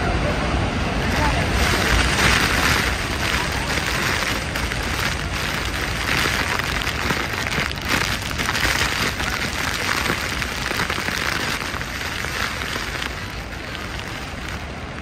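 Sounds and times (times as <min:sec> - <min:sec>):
waterfall roaring: 0:00.0 - 0:15.0
spray pelting boat deck: 0:01.0 - 0:14.9.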